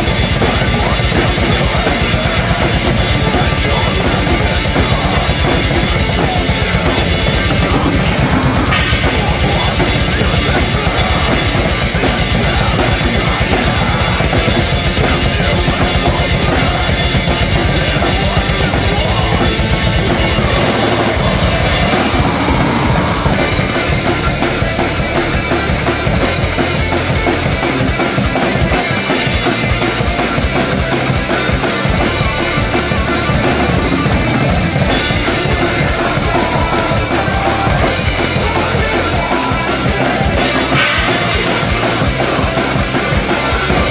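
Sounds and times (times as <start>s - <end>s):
fast metal drumming: 0.0s - 43.9s
rapid bass drum strokes: 0.0s - 43.9s.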